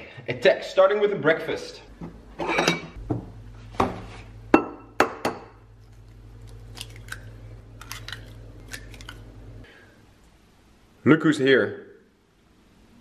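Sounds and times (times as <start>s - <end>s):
eggs cracking on a bowl: 5.0s - 9.3s
eggshell crackling: 5.6s - 9.6s.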